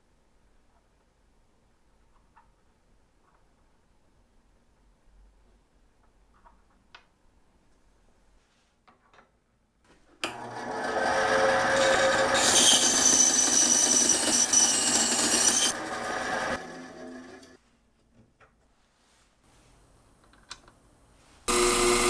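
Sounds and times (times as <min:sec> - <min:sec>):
bandsaw running: 0:10.3 - 0:17.6, 0:21.5 - 0:22.0
high hissing metal cut: 0:12.4 - 0:15.8.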